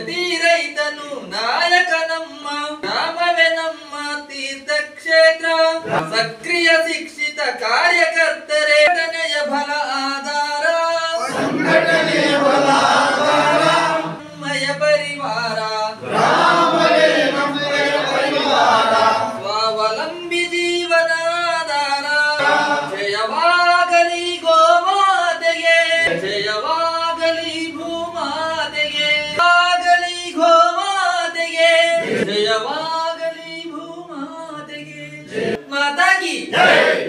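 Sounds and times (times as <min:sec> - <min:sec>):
people singing in unison: 0:11.2 - 0:20.0, 0:22.2 - 0:23.5, 0:26.0 - 0:29.5, 0:31.7 - 0:33.1, 0:34.8 - 0:35.6, 0:36.5 - 0:37.0.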